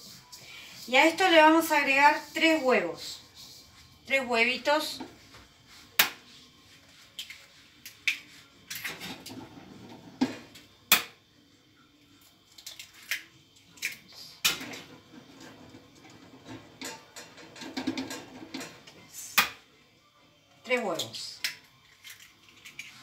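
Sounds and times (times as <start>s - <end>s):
eggs cracked on metal bowl: 10.9s - 11.2s, 12.5s - 14.6s, 21.4s - 23.0s.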